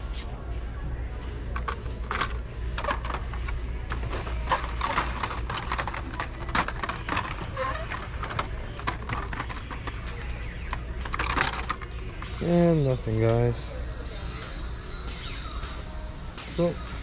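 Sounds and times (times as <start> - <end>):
plastic cards clicking and rustling: 1.6 - 12.4.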